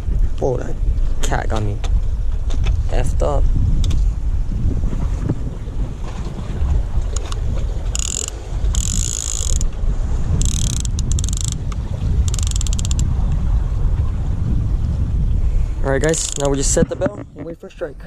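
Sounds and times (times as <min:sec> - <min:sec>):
wind rumble on microphone: 0:00.0 - 0:18.0
fishing reel clicking buzz: 0:07.2 - 0:09.7, 0:10.4 - 0:13.0, 0:16.1 - 0:16.5.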